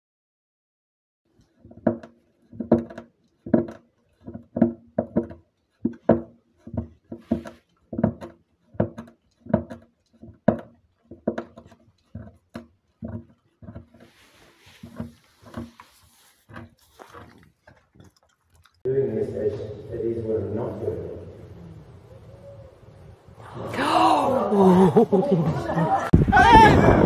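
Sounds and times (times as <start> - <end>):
dog gnawing wooden door: 1.3 - 18.9.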